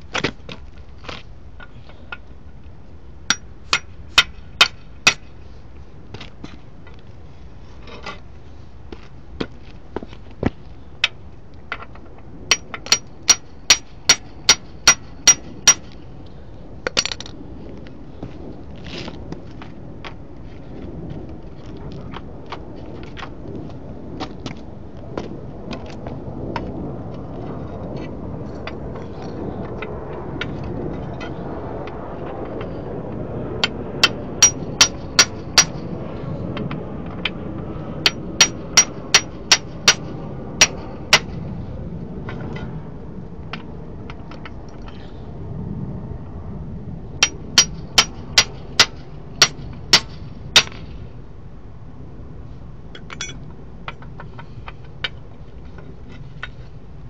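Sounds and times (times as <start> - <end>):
hammer striking steel drift: 3.3 - 5.3, 12.5 - 15.9.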